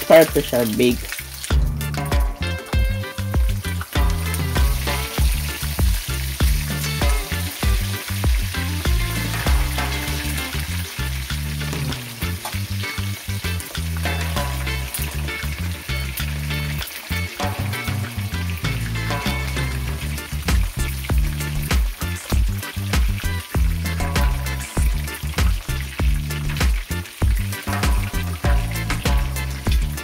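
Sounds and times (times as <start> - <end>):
background music with bass: 0.0 - 30.0
fish sizzling in hot oil: 0.0 - 30.0
oil popping and crackling: 0.0 - 30.0.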